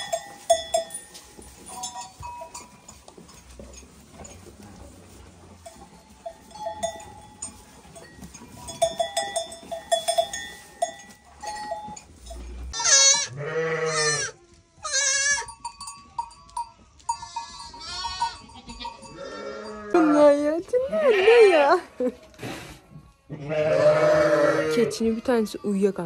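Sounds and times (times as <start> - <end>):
bell-like clinking: 0.0 - 12.7, 15.4 - 20.4
goats bleating: 12.7 - 15.5, 17.2 - 20.3, 23.1 - 25.3.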